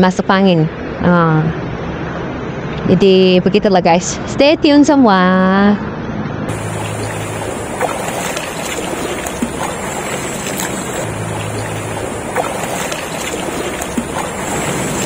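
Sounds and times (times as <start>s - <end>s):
light water splashes: 6.5s - 15.0s
river flowing over stones: 6.5s - 15.0s.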